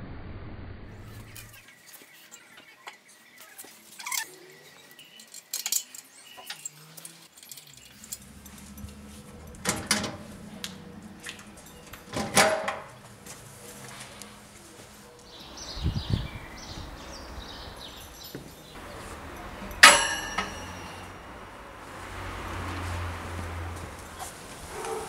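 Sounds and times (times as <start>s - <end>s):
metallic clinks of steel fittings: 5.0s - 12.5s, 17.9s - 21.2s
sharp metal clanks: 17.9s - 21.6s.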